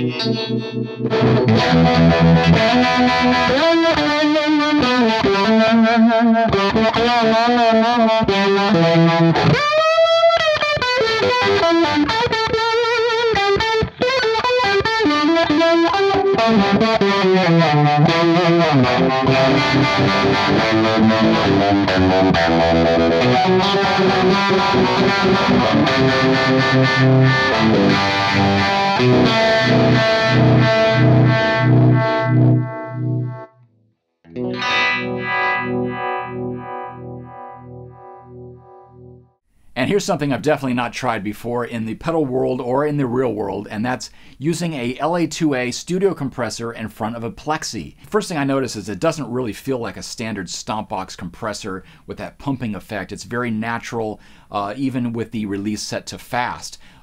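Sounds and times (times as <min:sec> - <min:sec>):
overdriven electric guitar with tremolo: 0:00.0 - 0:33.5, 0:34.3 - 0:39.2.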